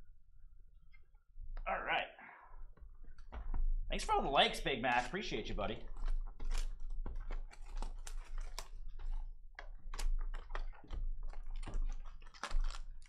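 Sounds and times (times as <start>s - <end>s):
plastic wrap crinkling and tearing: 4.2s - 13.0s.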